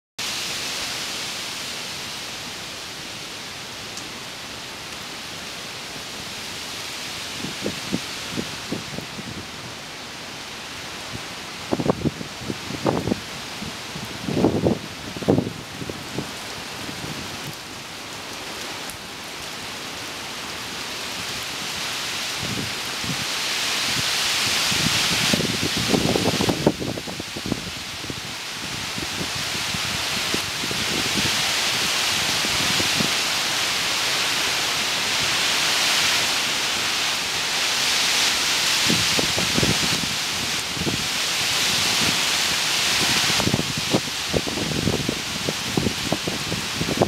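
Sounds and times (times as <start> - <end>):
rain on foliage: 0.2 - 47.0
wind thumps on microphone: 24.6 - 33.2, 38.8 - 42.2, 43.0 - 47.0.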